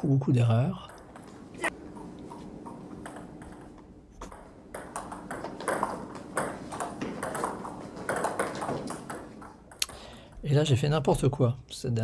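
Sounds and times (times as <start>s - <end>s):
table tennis ball clicking: 2.6s - 10.0s.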